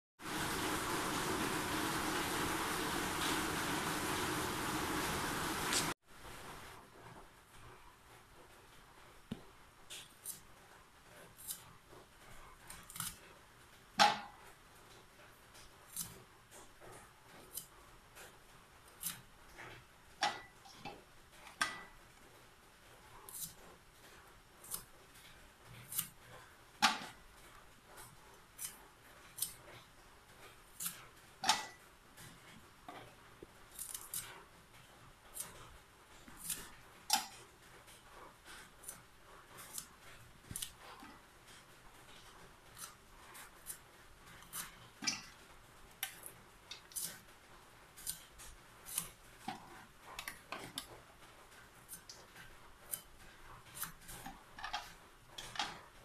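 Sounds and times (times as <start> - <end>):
knife cutting vegetable: 11.2 - 11.7, 12.7 - 13.2, 15.9 - 16.3, 18.9 - 20.4, 23.3 - 23.7, 24.6 - 24.9, 25.7 - 26.2, 28.5 - 29.8, 30.7 - 31.8, 33.7 - 34.4, 35.3 - 37.4, 38.4 - 41.2, 42.6 - 45.4, 46.0 - 47.3, 48.0 - 51.0, 51.8 - 55.8.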